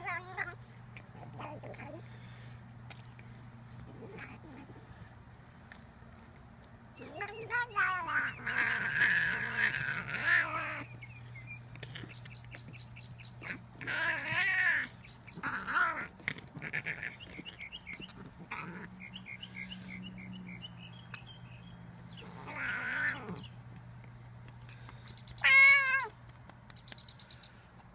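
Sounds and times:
cat meowing: 0:07.0 - 0:10.9, 0:22.2 - 0:23.4, 0:25.4 - 0:26.1.

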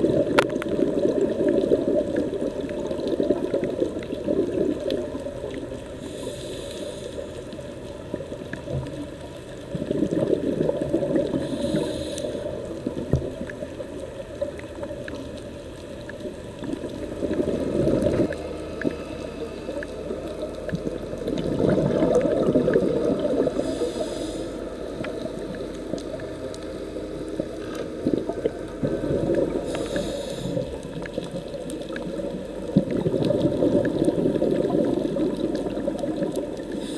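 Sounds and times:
bubbling underwater exhalations: 0:00.0 - 0:05.6, 0:09.7 - 0:11.9, 0:16.3 - 0:23.8, 0:28.0 - 0:36.9
hissing regulator inhalation: 0:06.0 - 0:07.3, 0:11.3 - 0:12.6, 0:23.4 - 0:25.1, 0:29.6 - 0:30.9.

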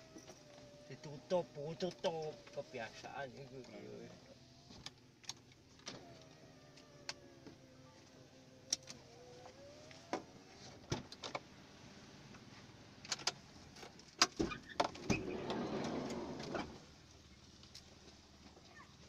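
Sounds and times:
motorbike passing by: 0:15.1 - 0:16.8.

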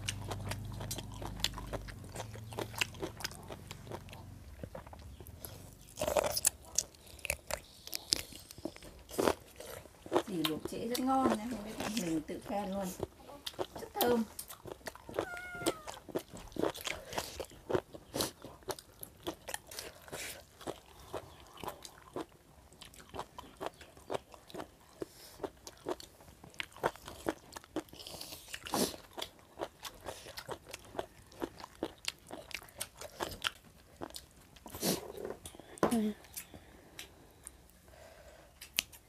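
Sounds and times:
crunching and chewing: 0:00.0 - 0:37.9, 0:38.5 - 0:39.0.

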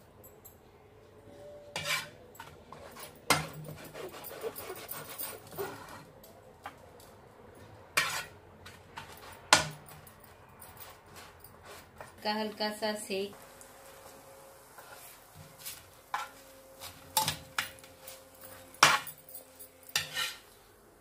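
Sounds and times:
metal spatula scraping frying pan: 0:01.7 - 0:06.1, 0:08.0 - 0:09.6, 0:14.7 - 0:17.8, 0:19.9 - 0:20.6.

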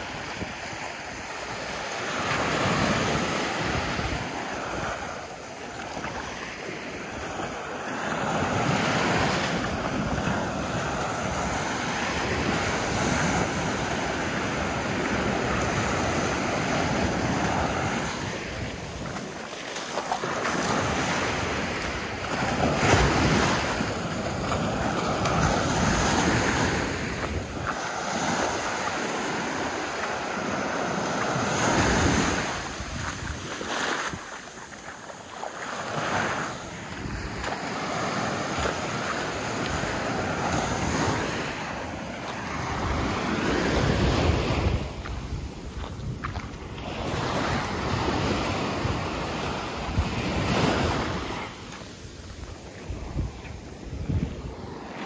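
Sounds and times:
small waves breaking on sand: 0:00.0 - 0:55.0
wind buffeting microphone: 0:20.2 - 0:34.8, 0:36.7 - 0:55.0.

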